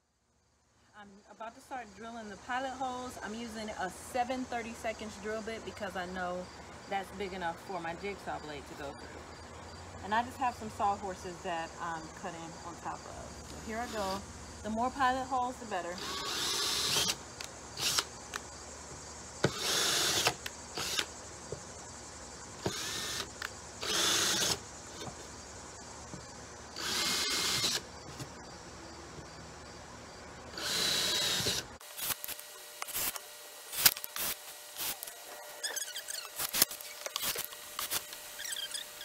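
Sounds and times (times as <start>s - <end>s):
cordless drill boring into wood: 16.0s - 17.2s, 17.8s - 18.1s, 19.4s - 21.1s, 22.6s - 24.6s, 26.8s - 27.8s, 30.5s - 39.0s.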